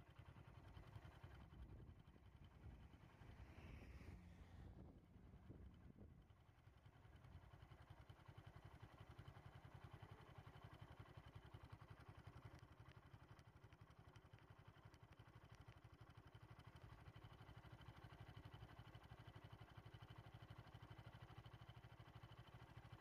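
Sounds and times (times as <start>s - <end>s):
faint vehicle engine idling: 0.0s - 23.0s.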